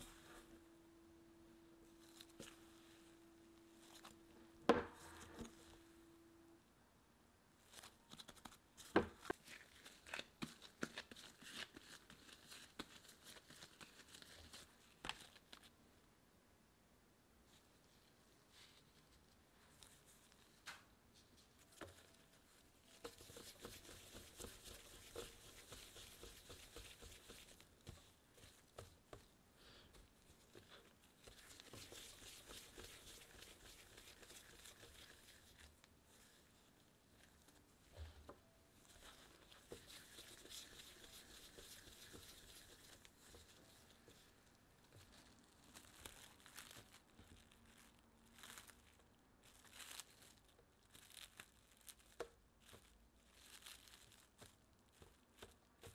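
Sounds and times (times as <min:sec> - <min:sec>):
hands rustling bread dough: 0:01.9 - 0:06.0, 0:07.6 - 0:15.8, 0:17.4 - 0:55.9
plastic wrap crinkling: 0:18.0 - 0:37.7, 0:38.8 - 0:55.9.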